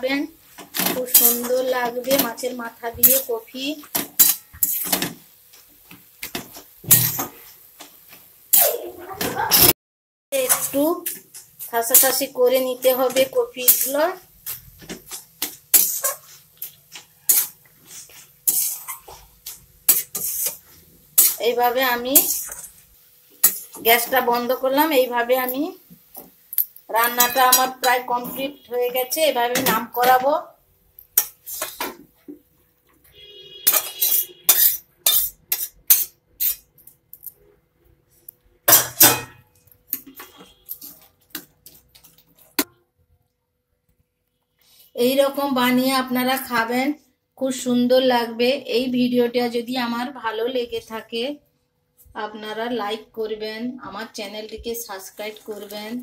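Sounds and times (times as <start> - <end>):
spatula scraping metal pan: 4.2 - 5.1, 12.9 - 14.0, 15.7 - 16.5, 17.2 - 22.8, 27.1 - 28.6, 33.2 - 36.7.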